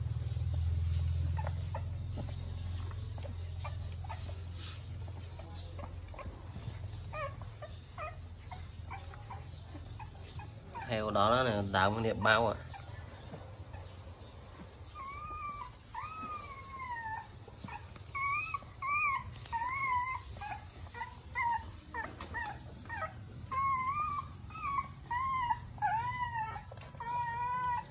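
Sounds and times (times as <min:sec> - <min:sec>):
puppies whimpering: 0:00.0 - 0:27.9.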